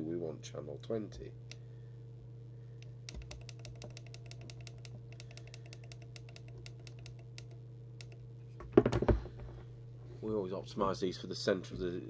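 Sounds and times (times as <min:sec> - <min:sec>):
steady low hum: 0:00.0 - 0:12.0
radio channel control clicks: 0:02.8 - 0:08.2.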